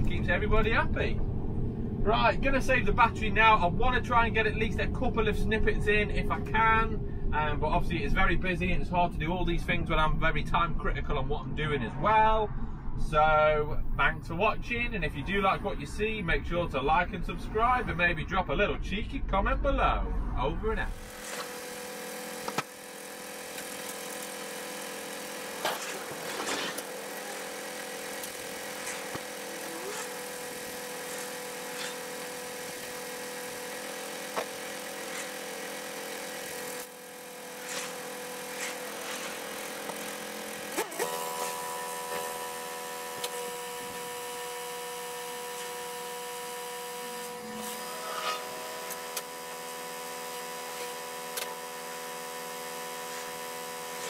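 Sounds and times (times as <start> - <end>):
hydraulic bed whining: 20.9 - 54.0.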